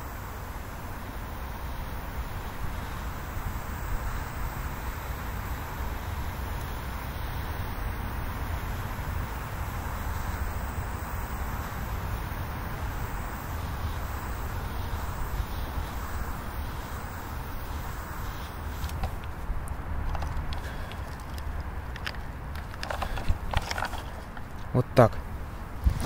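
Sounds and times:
even hiss: 0.0 - 19.5.

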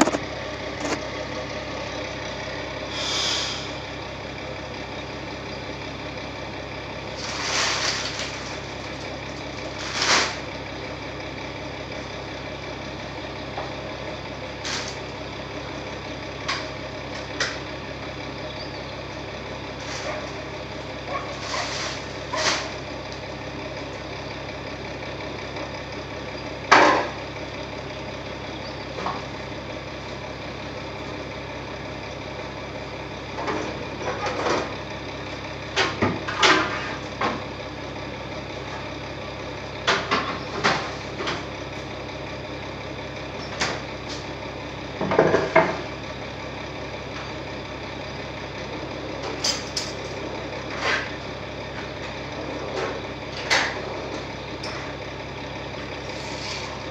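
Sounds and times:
knocks and clatters: 0.0 - 1.0
diesel lorry idling: 0.0 - 56.9.

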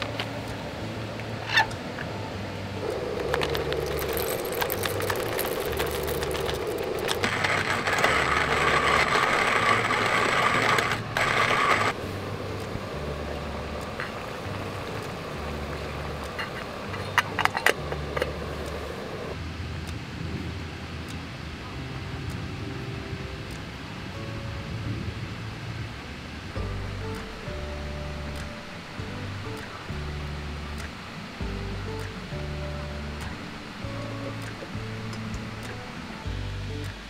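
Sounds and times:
coffee mill grinding beans: 2.8 - 12.0
kettle lid clinking: 16.4 - 18.4.

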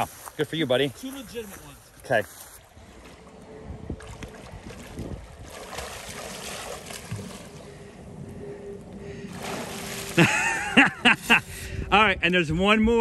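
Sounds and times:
water splashing around swimmer: 4.0 - 7.8, 9.3 - 10.4.

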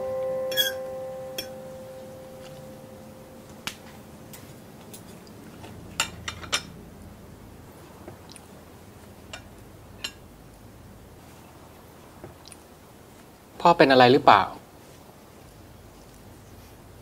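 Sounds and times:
piano note: 0.0 - 4.3
cutlery clinking on plates: 0.5 - 0.8, 4.4 - 6.8.

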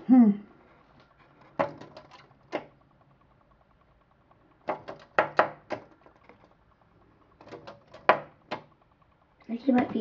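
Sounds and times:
bird knocking against window glass: 1.3 - 3.2, 4.3 - 6.6, 7.2 - 8.8.

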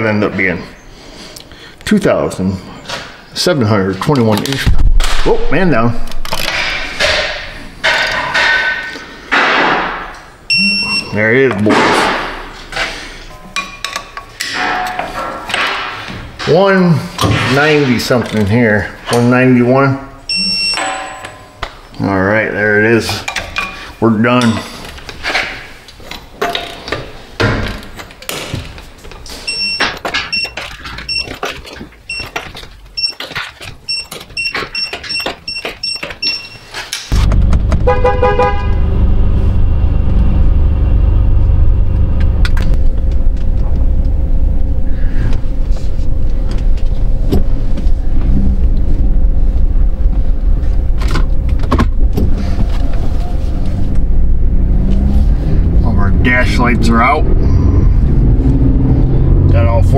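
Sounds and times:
vehicle warning chime beeping: 10.5 - 11.4, 20.3 - 20.9, 29.5 - 31.4, 32.1 - 32.4, 33.9 - 36.7
pickup engine low rumble: 37.1 - 59.9.

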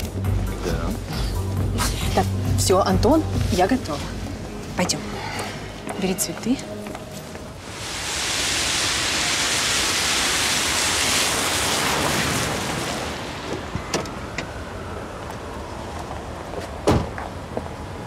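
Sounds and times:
tyres hissing on wet asphalt: 7.5 - 14.3.

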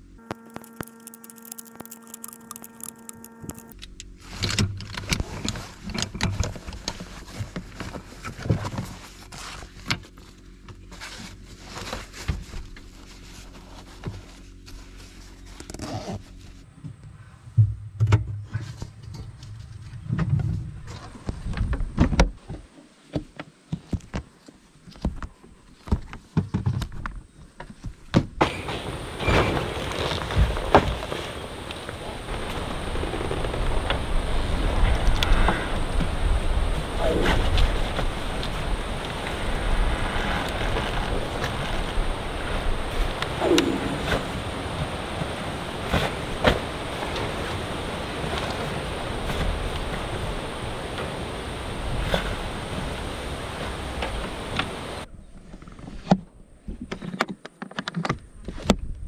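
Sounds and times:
small clicks and knocks: 0.2 - 7.9.

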